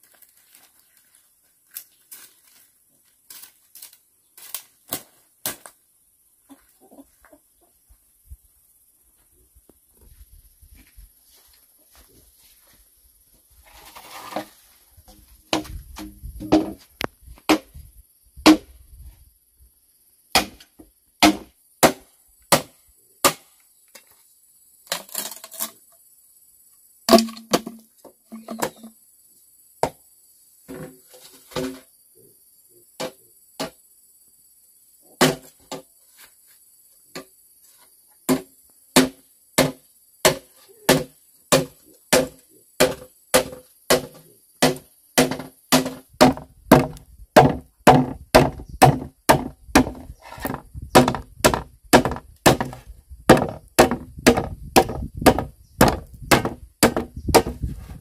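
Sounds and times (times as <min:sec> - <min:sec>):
machete striking bamboo: 0:04.4 - 0:05.8, 0:15.5 - 0:16.8, 0:17.5 - 0:17.8, 0:18.4 - 0:18.7, 0:20.3 - 0:23.6, 0:27.1 - 0:28.9, 0:35.2 - 0:35.8, 0:38.3 - 0:57.7.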